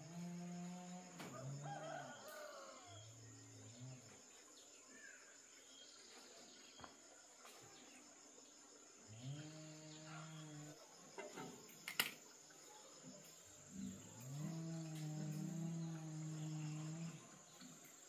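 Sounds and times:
faint roosters crowing: 1.0s - 3.5s
high-pitched insect trill: 8.2s - 18.0s.

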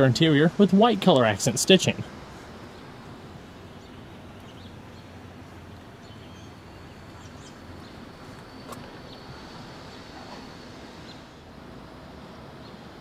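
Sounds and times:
steady low hum: 0.0s - 13.0s
faint bird chirps: 3.6s - 11.4s.

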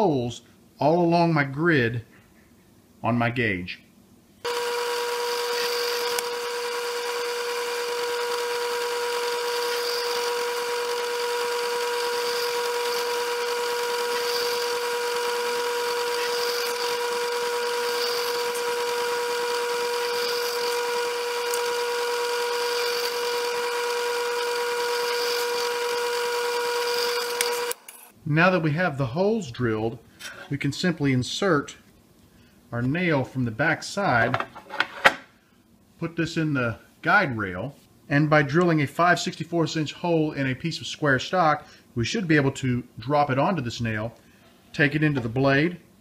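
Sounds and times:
drill press motor humming: 4.5s - 28.1s.

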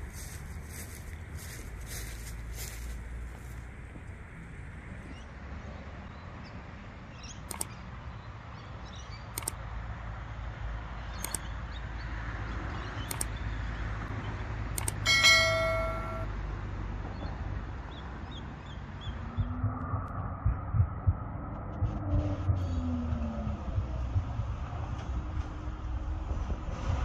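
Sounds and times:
low outdoor rumble: 0.0s - 27.0s
sharp mouse clicks: 7.4s - 7.8s, 9.3s - 9.6s, 11.2s - 11.5s, 13.0s - 13.4s, 14.8s - 15.0s
notification bell ding: 15.0s - 16.3s.

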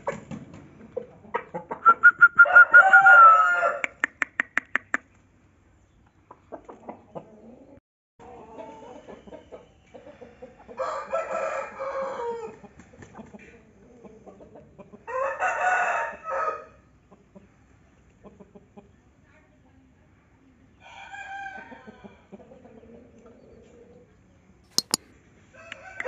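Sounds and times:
rooster crowing: 2.4s - 3.8s, 10.8s - 12.5s
sharp clicks: 24.8s - 25.0s.

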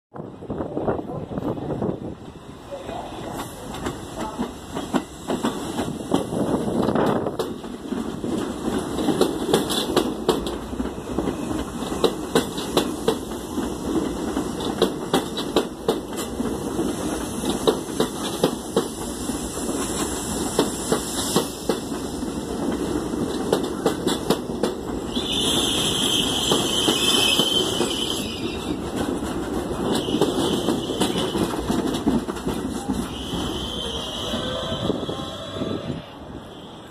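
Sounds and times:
subway train wheels clacking: 0.2s - 36.9s
high-pitched wheel squeal: 25.1s - 28.8s, 33.1s - 36.8s.

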